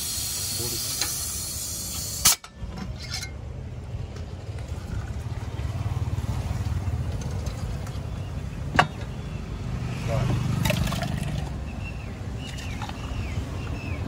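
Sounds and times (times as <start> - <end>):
pressurised gas hissing: 0.0 - 2.4.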